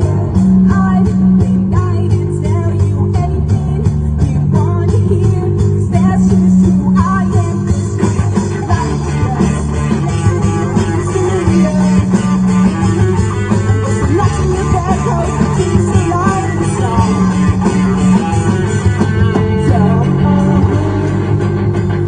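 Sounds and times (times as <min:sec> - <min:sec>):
bass guitar: 0:00.0 - 0:22.0
electric guitars: 0:00.0 - 0:22.0
rock band playing live: 0:00.0 - 0:22.0.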